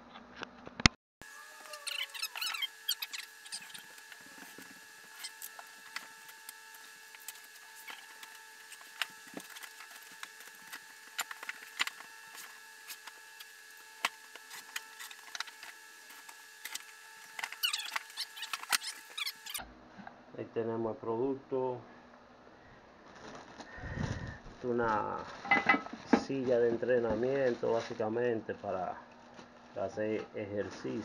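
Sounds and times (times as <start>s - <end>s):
cardboard flaps squeaking: 1.4s - 19.6s.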